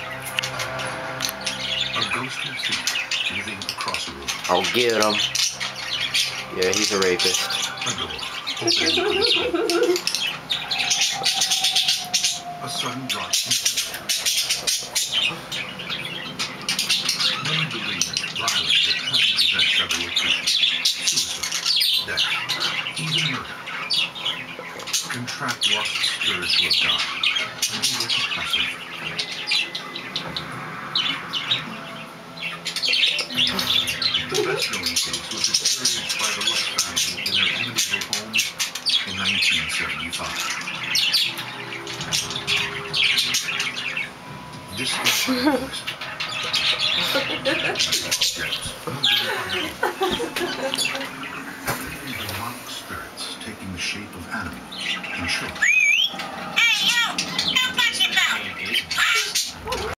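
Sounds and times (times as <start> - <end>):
budgerigar chattering and warbling: 0.0 - 44.2, 44.8 - 51.6, 52.2 - 59.9.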